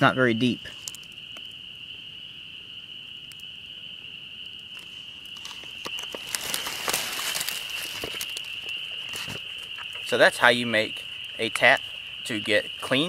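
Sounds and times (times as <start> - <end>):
feet in dry leaf litter: 4.8 - 10.2.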